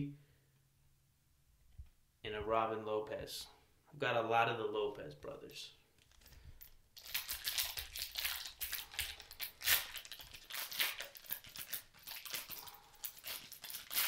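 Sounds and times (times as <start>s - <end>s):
foil wrapper tearing and crinkling: 6.0s - 14.0s.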